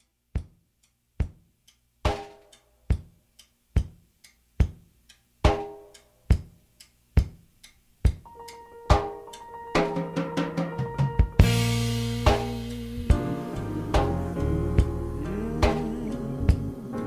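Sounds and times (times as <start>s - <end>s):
slow steady drum beat: 0.0s - 17.0s
heavy ringing drum hit: 9.8s - 13.4s.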